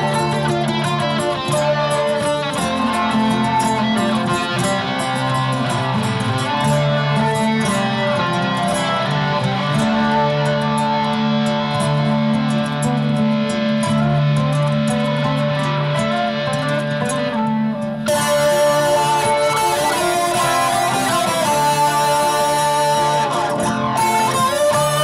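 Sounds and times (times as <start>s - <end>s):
nylon-string guitar ambient music: 0.0s - 25.0s.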